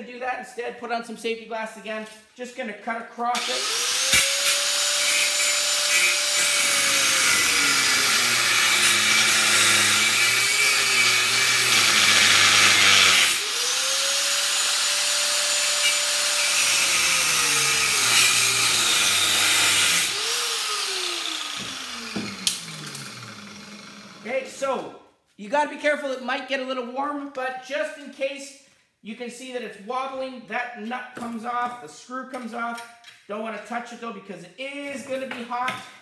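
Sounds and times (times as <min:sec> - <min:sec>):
angle grinder cutting metal: 0:03.4 - 0:24.3.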